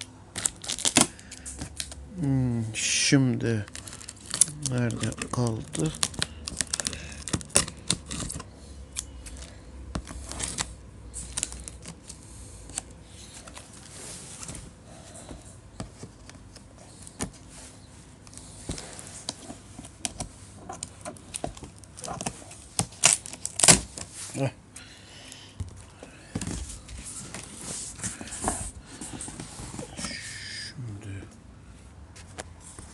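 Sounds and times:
sharp cardboard cracks: 0:00.3 - 0:02.0, 0:03.7 - 0:12.9, 0:18.7 - 0:24.1.

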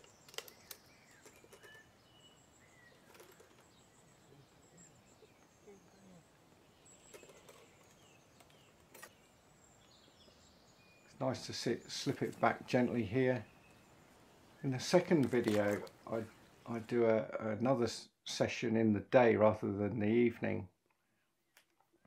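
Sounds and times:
bird chirps: 0:00.0 - 0:16.8.

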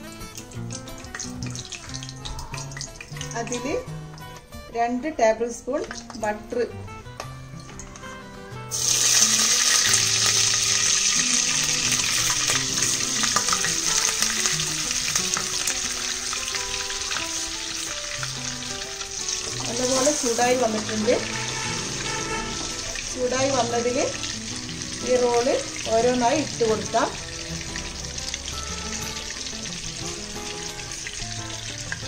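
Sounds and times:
butter sizzling in hot oil: 0:00.0 - 0:04.4, 0:07.2 - 0:32.0.

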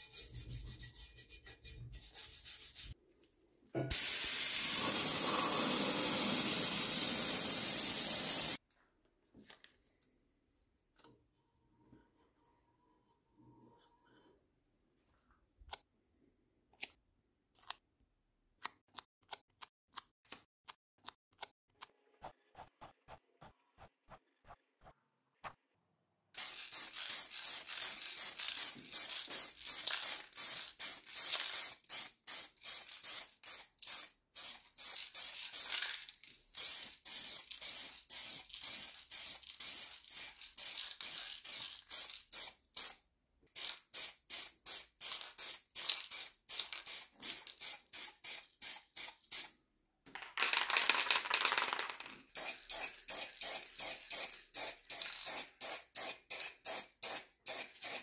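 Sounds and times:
aerosol can spraying: 0:03.9 - 0:08.6, 0:26.4 - 0:35.8, 0:36.6 - 0:43.0, 0:43.6 - 0:49.5, 0:50.5 - 0:58.0.

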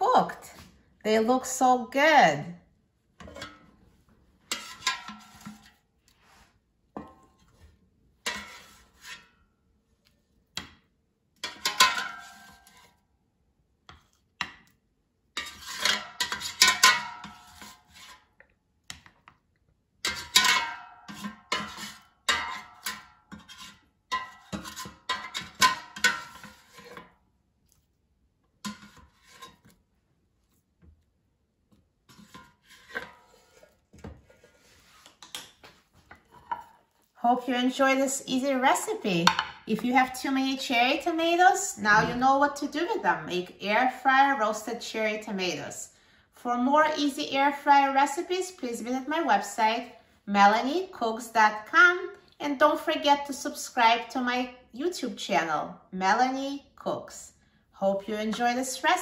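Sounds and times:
plastic spatula scraping basket: 0:04.5 - 0:06.6, 0:08.3 - 0:09.2, 0:15.4 - 0:18.3, 0:21.1 - 0:27.1, 0:28.6 - 0:29.8, 0:32.1 - 0:35.4.

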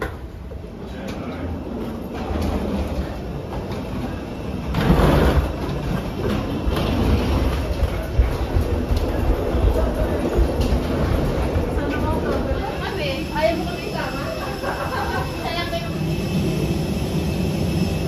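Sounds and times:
luggage wheels rolling: 0:00.0 - 0:14.2
passengers walking: 0:00.0 - 0:18.0.

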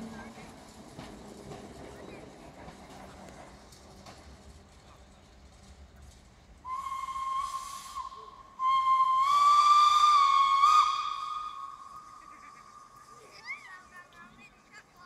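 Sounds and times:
steam locomotive whistle: 0:06.6 - 0:12.5.

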